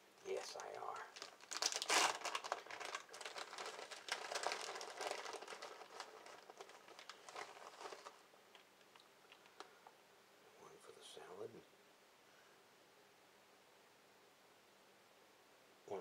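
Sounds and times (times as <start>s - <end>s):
plastic bag crinkling: 0.3s - 9.7s.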